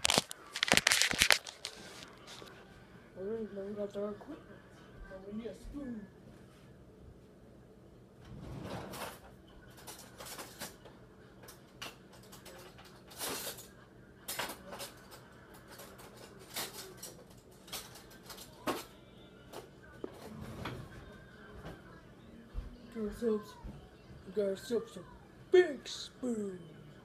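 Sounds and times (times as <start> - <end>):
cutlery clinking and clattering: 8.6 - 18.9.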